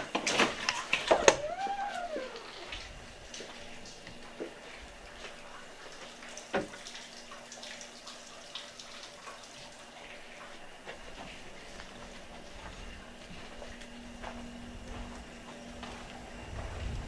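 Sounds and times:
faint steady hum: 0.0s - 17.0s
footsteps crunching on debris: 10.8s - 17.0s.

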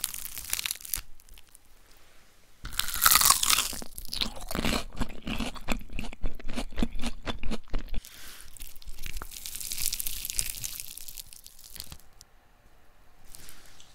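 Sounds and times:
fried batter crackling crunches: 0.0s - 1.6s, 2.7s - 12.2s
fritter tearing rustle: 0.0s - 1.6s, 8.7s - 12.1s.

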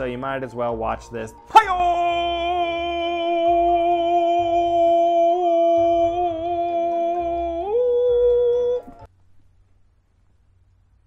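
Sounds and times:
man singing a long note: 1.0s - 9.1s.

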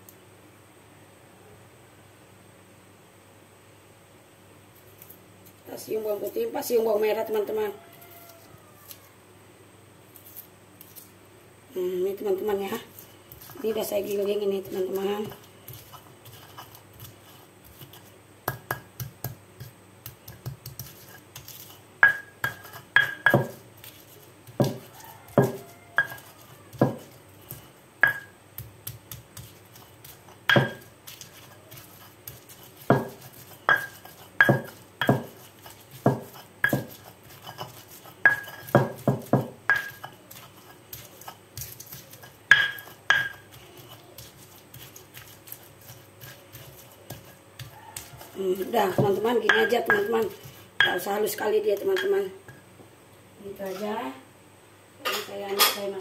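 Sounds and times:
stone pestle knocking in mortar: 14.6s - 52.6s.

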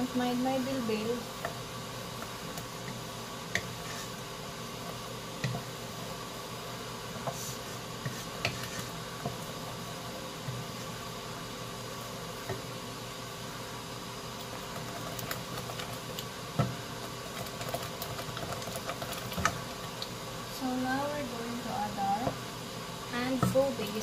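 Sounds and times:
sauce sizzling in a pot: 0.0s - 24.0s
wooden spoon knocking pot: 23.3s - 23.6s.

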